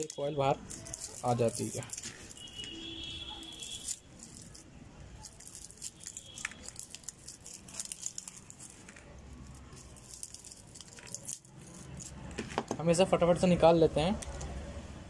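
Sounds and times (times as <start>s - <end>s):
wire coils pulled with pliers: 0.0s - 2.8s, 3.4s - 12.4s.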